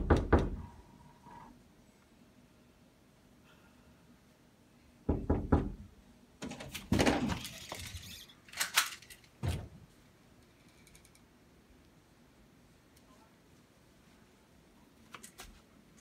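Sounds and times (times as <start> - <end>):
door thumps: 5.1 - 5.8.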